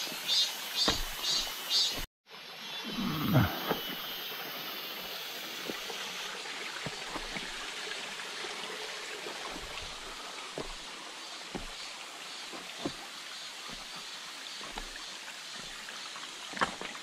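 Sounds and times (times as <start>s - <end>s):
creek water running over stones: 0.0s - 2.1s, 3.0s - 17.0s
footsteps on rocks and gravel: 0.8s - 2.1s, 6.8s - 7.6s, 9.4s - 17.0s.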